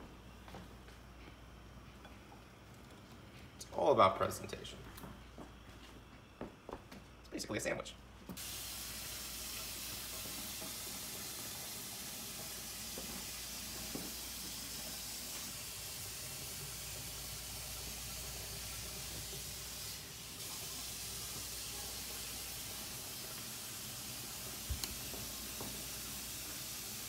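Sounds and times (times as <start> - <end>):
sauce boiling in a pan: 8.4 - 27.0.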